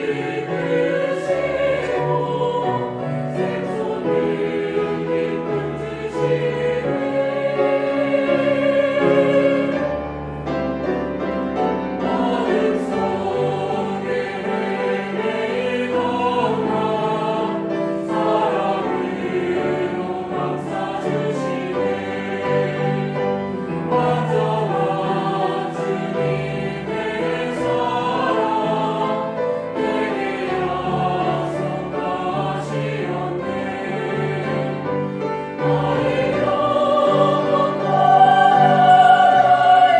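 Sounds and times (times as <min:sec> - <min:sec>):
mixed choir singing a hymn: 0:00.0 - 0:39.9.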